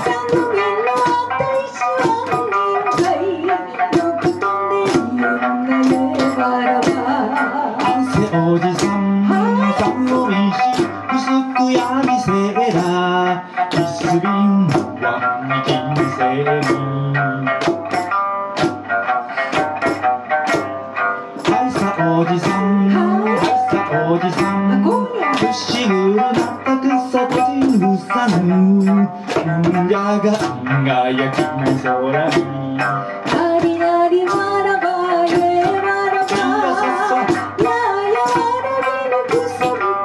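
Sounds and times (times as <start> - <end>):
person singing: 0.0 - 18.1, 21.3 - 40.0
frame drum beating: 0.0 - 40.0
plucked lute folk tune: 0.0 - 40.0.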